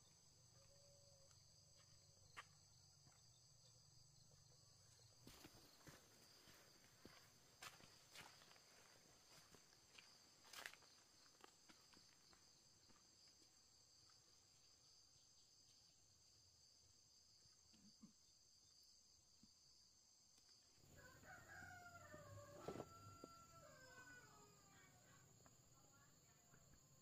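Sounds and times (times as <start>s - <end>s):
rooster crowing: 20.9s - 25.0s.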